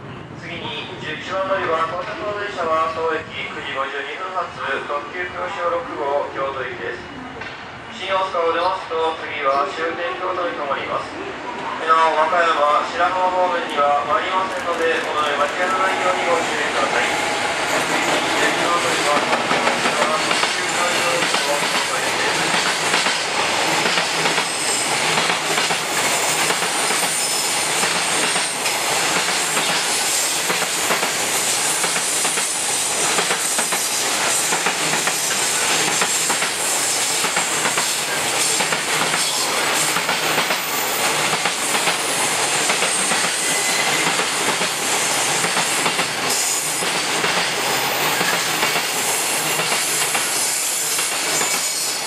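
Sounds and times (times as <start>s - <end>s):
freight train wheels clattering: 14.4s - 52.0s.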